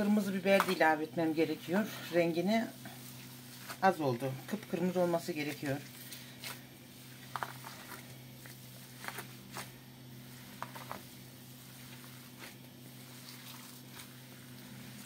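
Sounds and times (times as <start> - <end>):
hands kneading wet meat: 0.0 - 15.0
steady low hum: 0.0 - 15.0.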